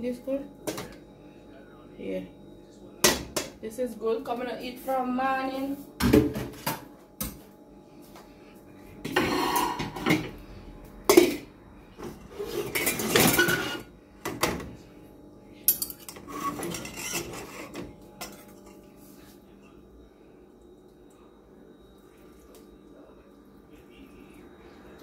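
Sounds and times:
pots and cutlery clanking: 9.0 - 10.3, 12.3 - 14.6, 15.7 - 18.8.

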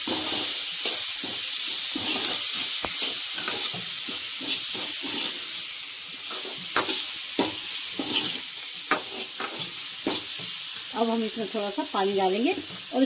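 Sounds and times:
food sizzling in oil: 0.0 - 13.0
ladle scraping a pan: 0.1 - 5.6, 6.2 - 7.1, 7.9 - 10.2.

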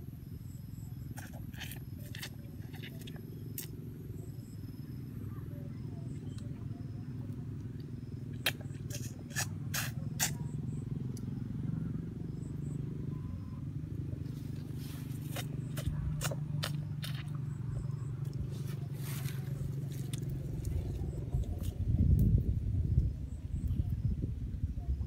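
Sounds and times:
steady low rumble: 0.0 - 25.0
close chewing and mouth sounds: 1.0 - 4.4, 6.0 - 11.3, 14.2 - 22.4.

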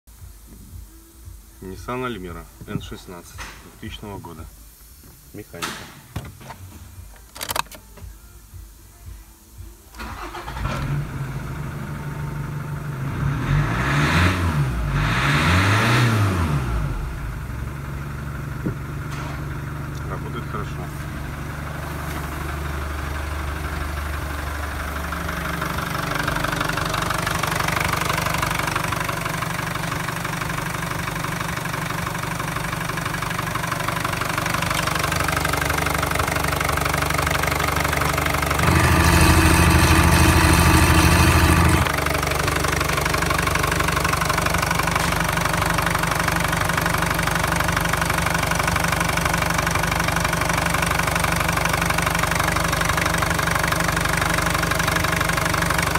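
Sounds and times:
diesel engine idling: 10.0 - 13.8, 15.9 - 55.9.

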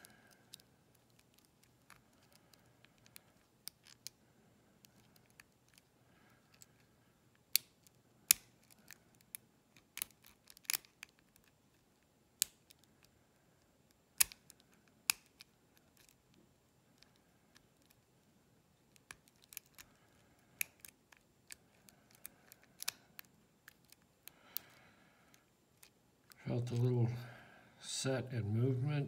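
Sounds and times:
lock pick metallic clicks: 7.4 - 11.5, 14.2 - 16.2, 20.6 - 24.8.

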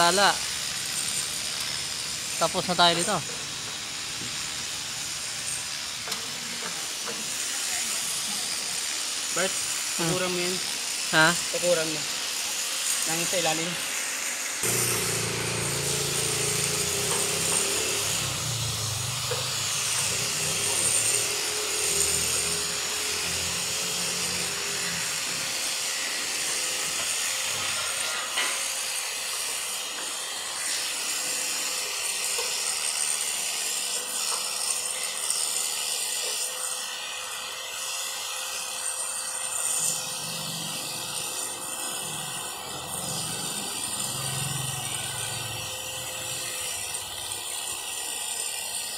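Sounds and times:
hand tool scraping on metal: 14.6 - 23.7.

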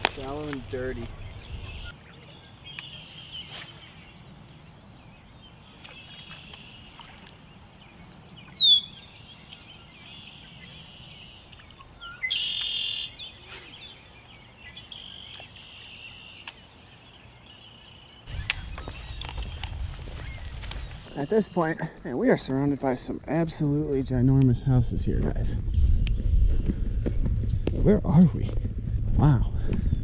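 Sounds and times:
songbirds trilling: 0.0 - 23.9
buzzy bird song: 0.0 - 26.8.

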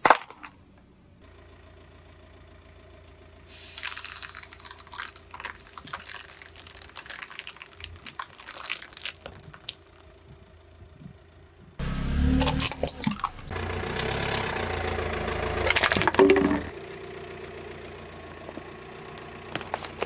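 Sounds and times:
sticks crackling and snapping: 3.8 - 10.1.

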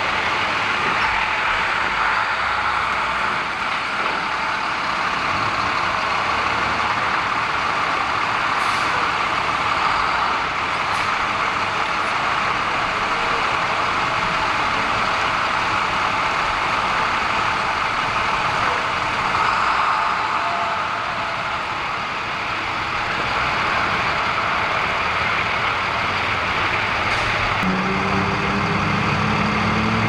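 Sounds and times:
heavy vehicle engine idling: 0.0 - 30.0.

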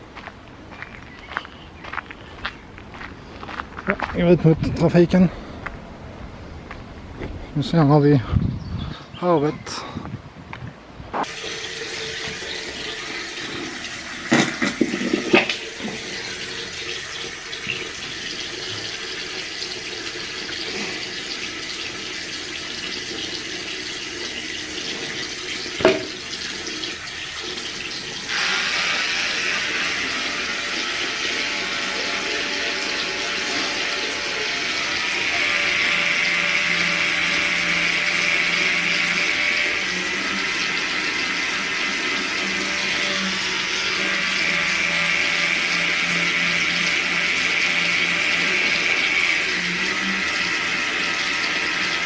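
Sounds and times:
water running: 11.2 - 52.0
knocks: 25.8 - 26.2.

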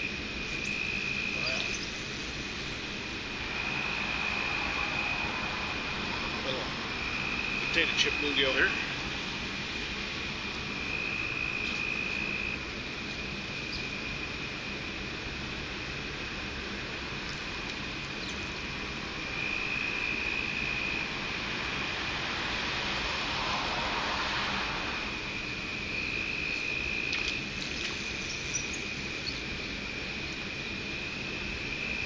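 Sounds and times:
insect trill: 0.0 - 32.0
vehicle passing: 3.2 - 10.0, 18.6 - 27.0.

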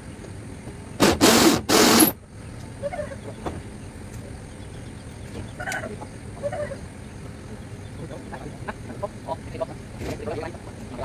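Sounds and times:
power drill driving screws into metal: 1.0 - 2.2
chickens clucking: 2.7 - 3.6, 4.5 - 10.9.

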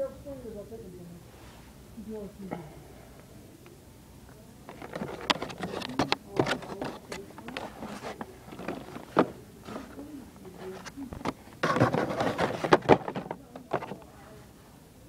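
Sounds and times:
plastic packaging rustling: 4.7 - 14.1.

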